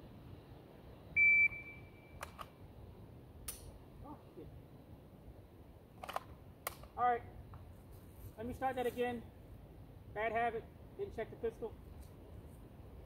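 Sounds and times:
shot timer beep: 1.2s - 2.2s.

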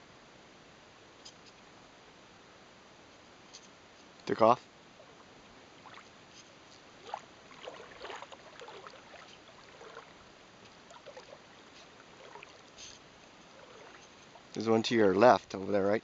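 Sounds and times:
shallow water sloshing and splashing: 5.0s - 14.9s.

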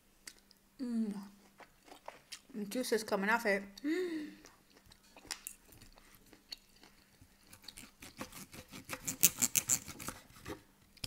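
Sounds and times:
chewing: 1.4s - 2.5s, 4.4s - 9.9s
knife and fork cutting on board: 7.5s - 10.2s.

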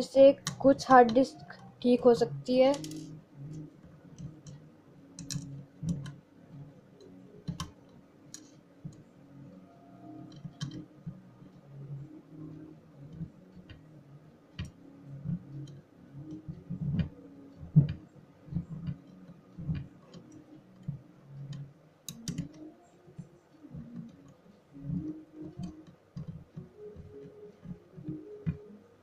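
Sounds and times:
small clicks and taps on table: 5.2s - 6.2s, 7.4s - 9.0s, 10.3s - 10.9s.

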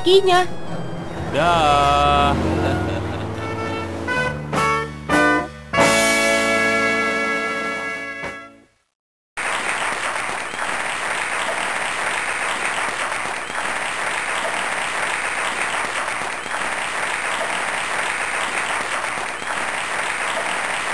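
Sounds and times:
crowd applause: 1.3s - 3.6s, 9.4s - 20.9s.

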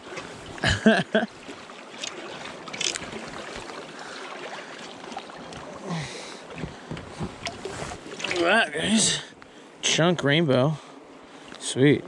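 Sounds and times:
river current rushing: 0.0s - 10.0s
light knocks on raft: 6.5s - 7.6s.

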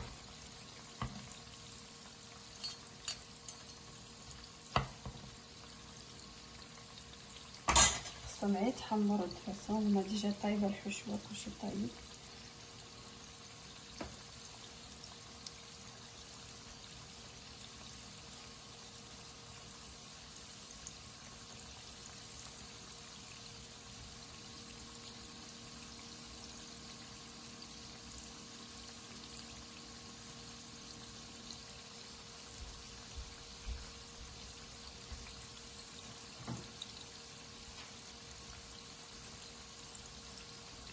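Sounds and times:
pastry deep-frying in oil: 0.0s - 40.9s.

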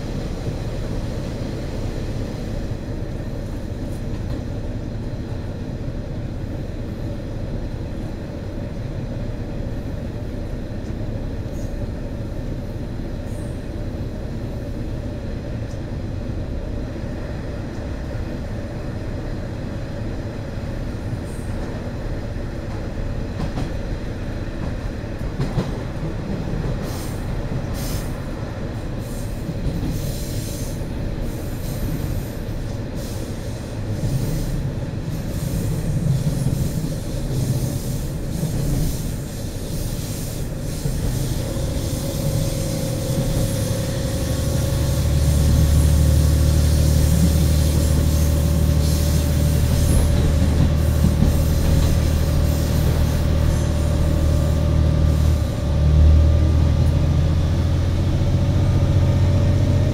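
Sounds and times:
wheels rumbling on rail: 0.0s - 59.9s
diesel engine drone: 52.8s - 59.9s.

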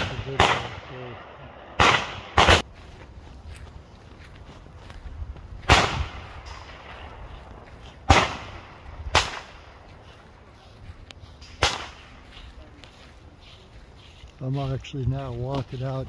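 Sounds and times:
gunshots with echo: 0.0s - 2.6s, 5.7s - 7.2s, 8.1s - 9.7s, 11.6s - 12.1s.

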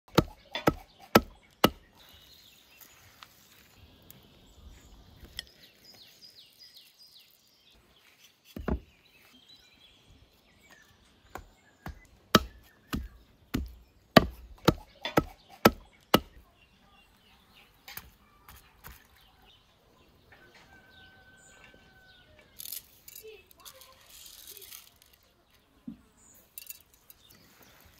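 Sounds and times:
cleaver chopping meat on wood: 0.1s - 1.9s, 11.3s - 16.4s.

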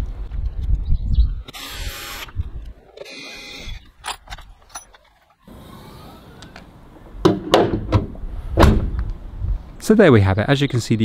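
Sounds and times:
cordless drill whirring: 1.5s - 2.3s
sharp knock: 7.2s - 9.0s.

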